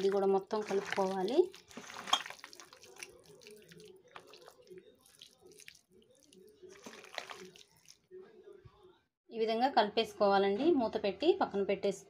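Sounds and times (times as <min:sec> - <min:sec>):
faint wet squelching: 0:00.0 - 0:08.1.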